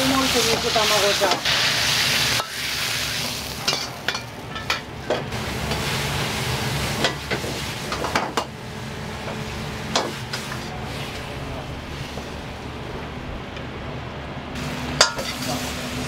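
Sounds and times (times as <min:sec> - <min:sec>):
food sizzling in a wok: 0:00.0 - 0:11.2, 0:14.6 - 0:16.0
metal ladle clanking on a wok: 0:15.0 - 0:15.6.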